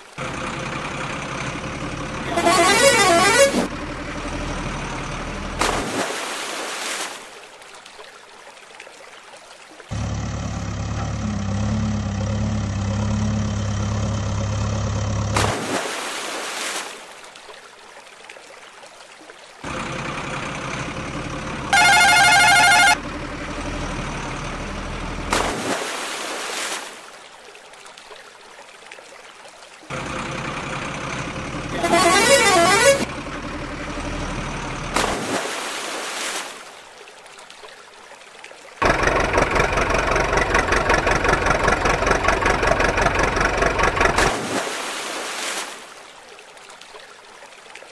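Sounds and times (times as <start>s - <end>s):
truck engine sound effect: 0.2s - 6.0s, 9.9s - 15.8s, 19.6s - 25.6s, 29.9s - 35.3s, 38.8s - 44.7s
horn honk: 2.2s - 3.7s, 21.7s - 23.0s, 31.7s - 33.1s
warbling horn: 2.2s - 3.7s, 21.7s - 23.0s, 31.7s - 33.1s
toy truck splashing into water: 5.6s - 7.4s, 15.2s - 17.1s, 21.7s - 23.0s, 25.3s - 27.1s, 34.9s - 36.8s, 38.8s - 45.9s.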